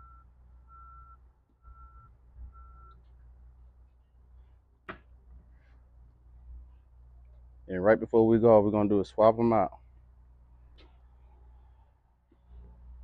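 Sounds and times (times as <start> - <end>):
faint electronic beeping: 0.0 - 3.0.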